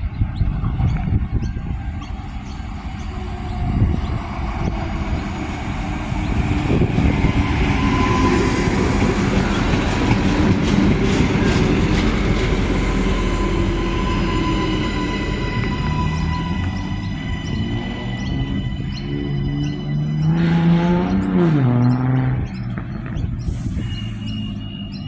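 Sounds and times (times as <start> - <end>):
railcar engine and wheel rumble: 0.0 - 20.4, 22.4 - 25.0
thin steady squeal: 6.8 - 9.6.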